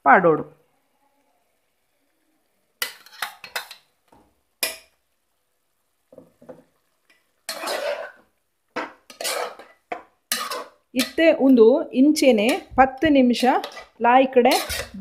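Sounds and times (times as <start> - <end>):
spoon scraping metal pot: 2.8 - 3.9, 7.5 - 11.3, 13.4 - 15.0.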